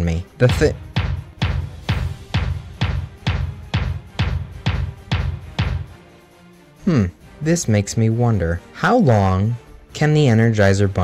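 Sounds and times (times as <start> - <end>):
bass drum march beat: 0.4 - 6.2.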